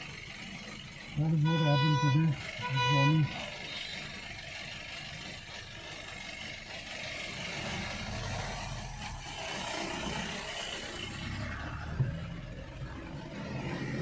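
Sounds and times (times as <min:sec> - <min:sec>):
car engine from inside cabin: 0:00.0 - 0:14.0
passing vehicles: 0:00.0 - 0:14.0
road noise: 0:00.0 - 0:14.0.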